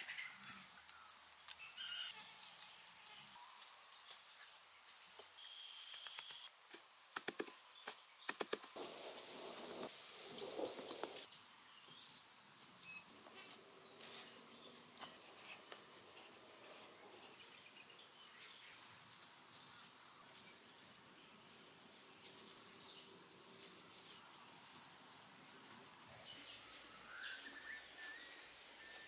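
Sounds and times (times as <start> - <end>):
insects buzzing drone: 0.0 - 4.3, 5.4 - 6.5, 26.0 - 29.0.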